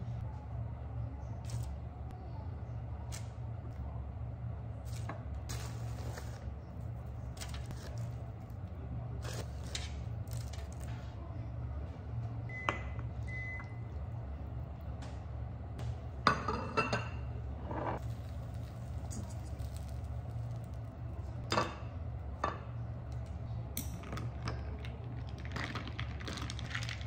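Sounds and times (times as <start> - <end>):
steady low hum: 0.0 - 27.0
electronic appliance beeps: 12.5 - 14.0.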